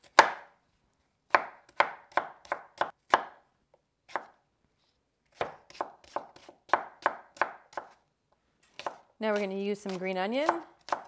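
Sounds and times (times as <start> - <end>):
knife chopping on wooden board: 0.0 - 0.5, 1.3 - 3.4, 5.3 - 8.0, 8.7 - 9.0, 9.9 - 11.0.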